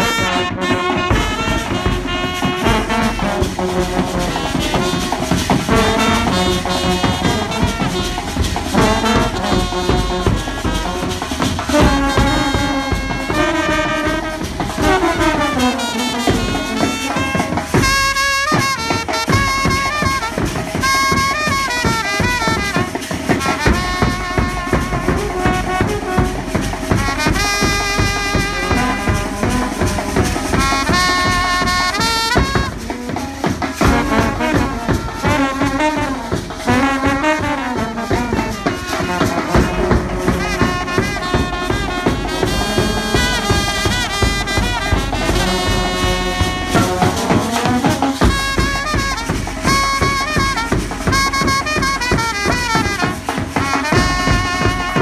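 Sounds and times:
steady drum beat: 0.0 - 55.0
trumpet melody: 0.0 - 55.0.

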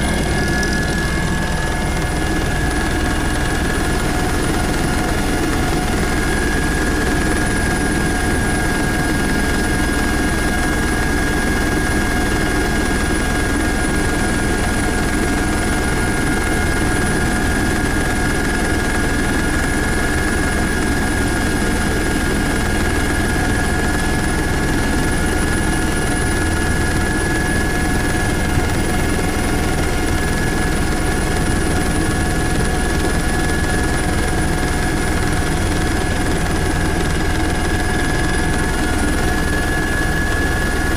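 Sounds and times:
high whine: 0.0 - 3.7
helicopter engine and rotor drone: 0.0 - 40.9.

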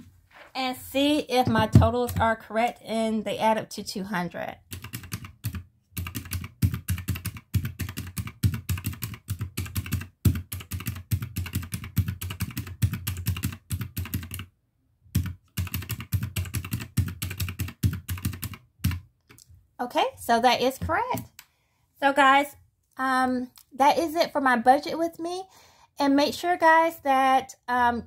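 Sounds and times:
calculator keys clicking: 4.7 - 14.4, 15.2 - 19.0.

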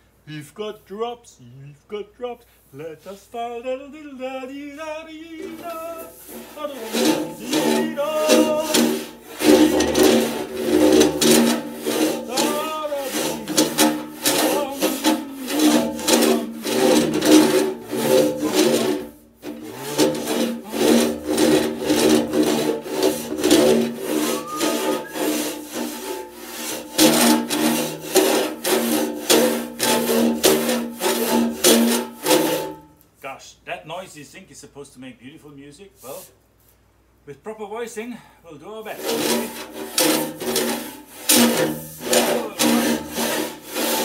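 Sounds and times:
steady held tones: 5.2 - 26.3
rasp scraping inside metal pipe: 5.4 - 32.8, 38.9 - 44.0.

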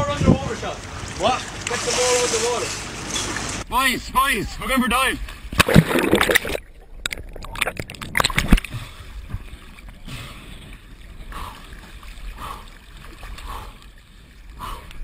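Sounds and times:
water splashing and gurgling: 0.6 - 3.7, 5.2 - 15.0
crackles and knocks: 5.6 - 10.0.

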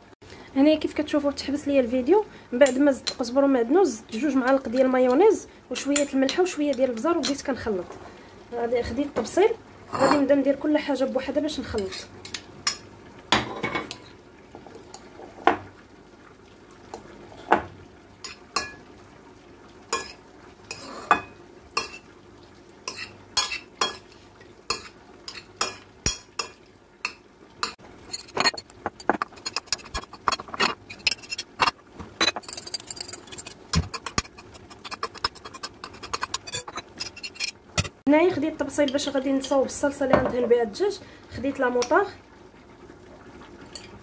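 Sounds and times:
cutlery clinking on ceramic plate: 27.6 - 37.9.

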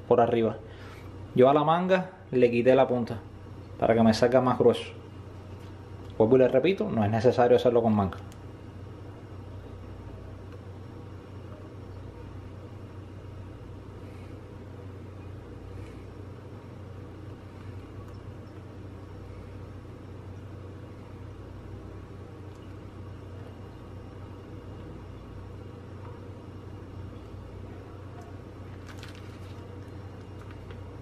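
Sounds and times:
low hum: 8.2 - 31.0.

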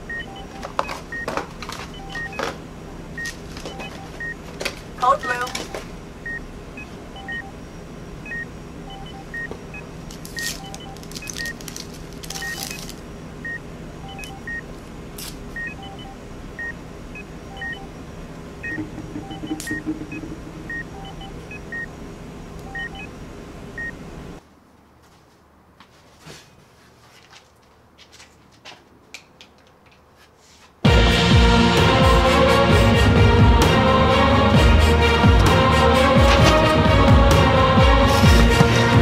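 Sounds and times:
monitor beeping: 0.0 - 2.6, 3.2 - 4.4, 5.0 - 7.6, 8.2 - 14.7, 15.6 - 22.0, 22.6 - 23.2, 23.8 - 24.0
steady hum: 0.0 - 24.4
lower beep tone: 2.0 - 2.4, 7.2 - 7.6, 12.3 - 12.8, 13.5 - 14.6, 15.6 - 18.0, 18.6 - 21.9, 22.7 - 23.1
paper crinkling: 10.2 - 13.0.

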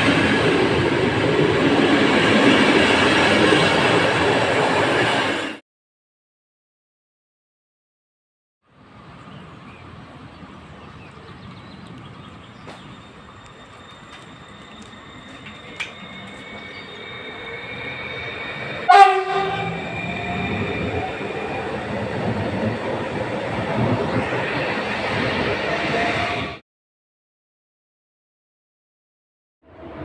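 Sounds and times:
electric train rolling: 0.0 - 5.6, 8.8 - 26.6
faint train whine: 8.7 - 26.6
train horn blast: 18.8 - 20.5.

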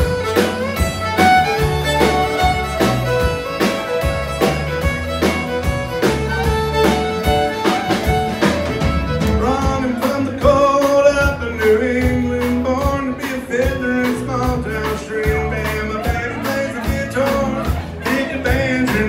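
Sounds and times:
fiddle line: 0.0 - 11.0
country band playing: 0.0 - 19.0
man singing: 9.2 - 19.0.

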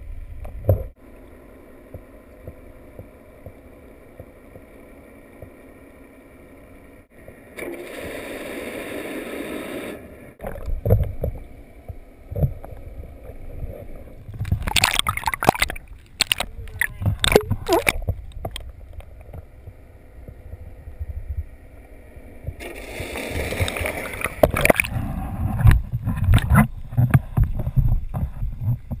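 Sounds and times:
water sloshing around boat: 10.4 - 20.7.

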